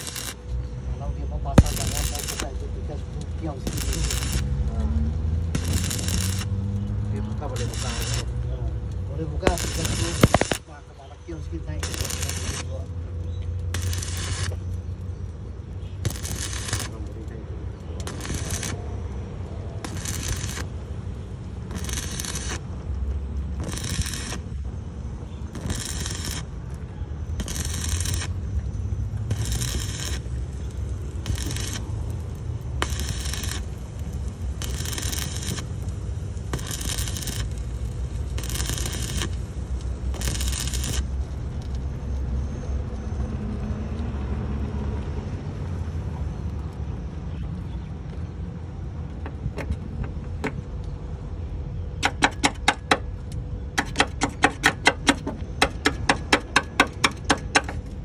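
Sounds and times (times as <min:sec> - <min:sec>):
welding arc crackling: 0:00.0 - 0:42.9, 0:52.0 - 0:58.0
sharp metallic taps: 0:52.0 - 0:57.9.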